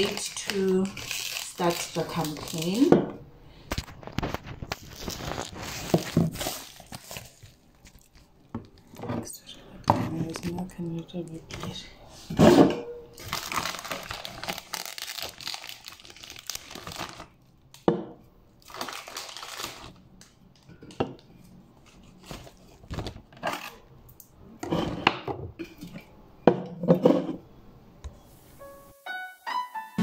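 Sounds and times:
plastic shrink-wrap crinkling: 0.0s - 2.9s, 3.6s - 9.0s, 13.2s - 17.6s, 18.6s - 20.1s.

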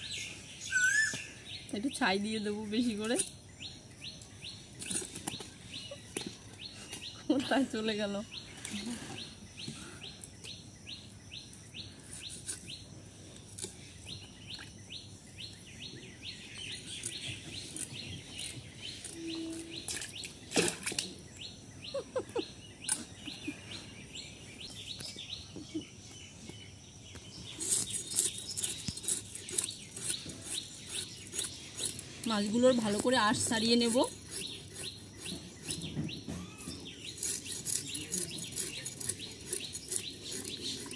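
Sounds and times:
small birds chirping: 0.0s - 40.9s
fish scales scraped on blade: 27.5s - 32.2s, 37.0s - 40.9s.

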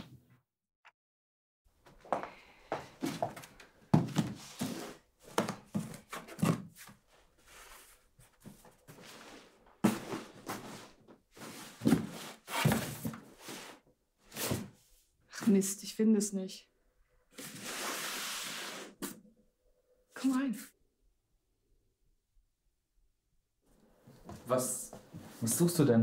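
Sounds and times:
footsteps indoors: 1.7s - 13.8s, 23.7s - 25.8s.

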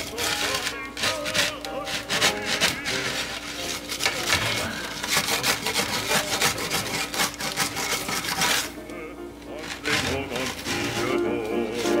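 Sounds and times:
wooden spatula scraping wooden peel: 0.0s - 8.8s, 9.6s - 12.0s.

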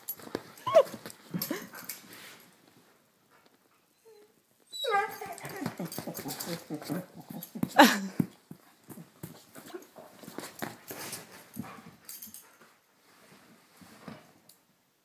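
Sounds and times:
dog whimpering: 0.6s - 1.0s, 3.9s - 8.0s
dog moving about: 5.0s - 12.8s.

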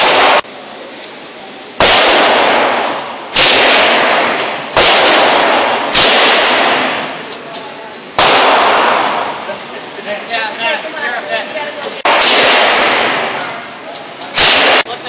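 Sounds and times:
gunshots echoing indoors: 0.0s - 0.5s, 1.8s - 7.2s, 8.2s - 9.5s, 12.0s - 13.6s, 14.4s - 14.9s.

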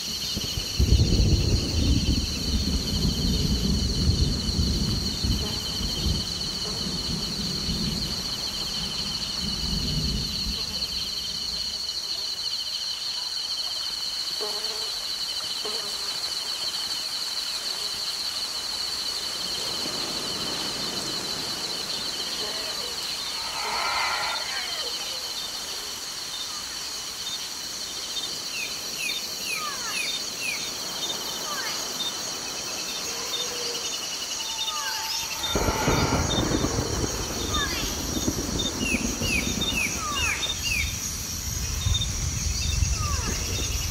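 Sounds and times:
insects buzzing: 0.0s - 43.9s
low thunder rumble: 0.3s - 11.5s, 23.0s - 25.8s, 35.1s - 43.9s
rain hissing: 17.0s - 29.4s, 33.9s - 43.9s.

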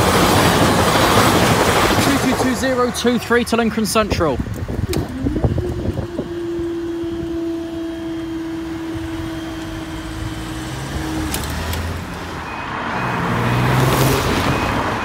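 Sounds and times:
steady tone: 4.8s - 13.2s
vehicle driving past: 5.2s - 15.0s.

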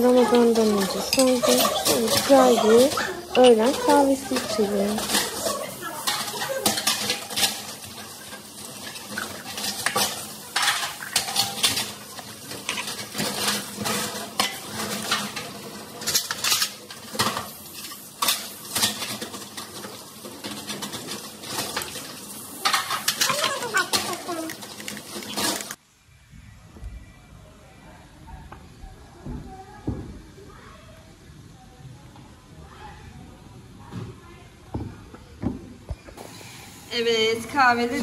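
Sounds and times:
steel trays clattering: 0.0s - 25.8s.

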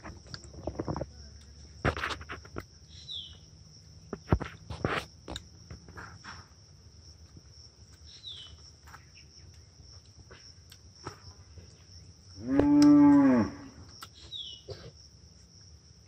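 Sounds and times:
crickets chirping: 0.0s - 16.0s
bird chirp: 2.8s - 3.5s, 8.0s - 9.8s, 14.0s - 14.8s.

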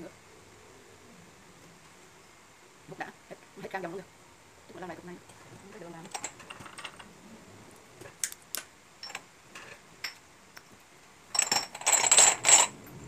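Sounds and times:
glass cups clicking and rattling: 9.0s - 10.2s, 11.3s - 12.8s.

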